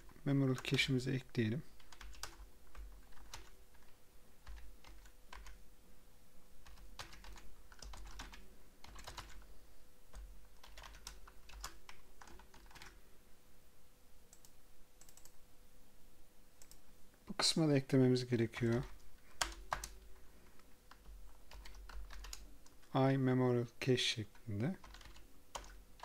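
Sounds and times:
faint steady hum: 0.0 - 26.0
keyboard typing clicks: 6.6 - 9.4, 10.1 - 12.9, 14.3 - 15.4, 16.6 - 16.8, 20.9 - 22.8, 24.8 - 25.8.

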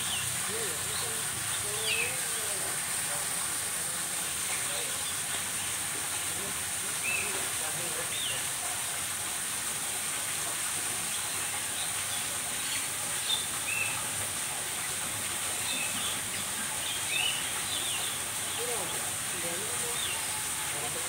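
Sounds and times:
small birds chirping: 0.0 - 2.4, 15.5 - 20.5
steady hiss: 0.0 - 21.0.

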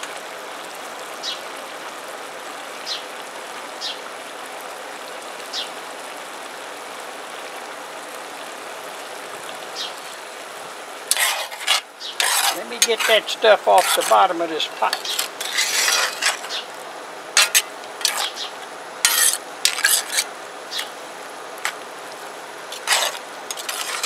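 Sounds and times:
pot simmering with watery hiss: 0.0 - 24.0
metal ladle scraping pot: 11.1 - 16.7, 17.4 - 21.0, 21.6 - 21.8, 22.7 - 24.0.

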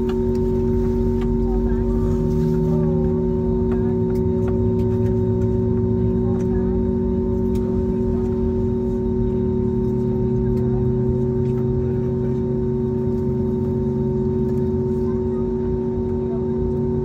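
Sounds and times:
aircraft engines humming: 0.0 - 17.0.

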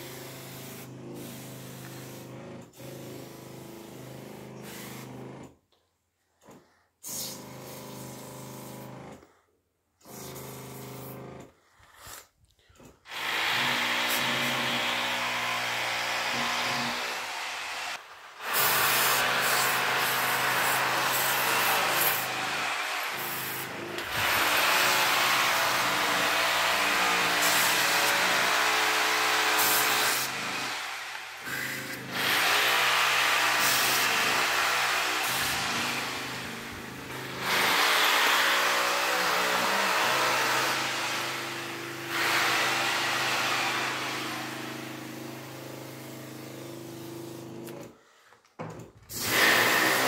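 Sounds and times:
liquid hissing from spray lance: 18.4 - 22.3.

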